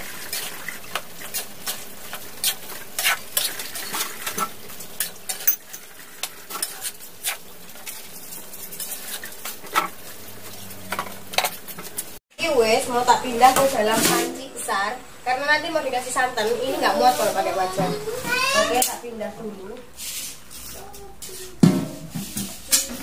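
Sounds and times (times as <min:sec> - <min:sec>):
frying sizzle: 0:00.0 - 0:19.0
metal spatula scraping a wok: 0:01.2 - 0:10.0.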